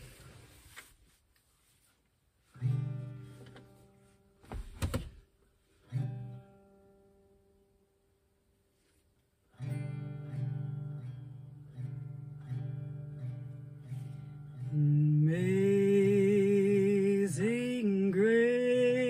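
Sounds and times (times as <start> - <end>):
acoustic guitar strumming: 2.5 - 4.4, 5.8 - 7.9, 9.5 - 19.0.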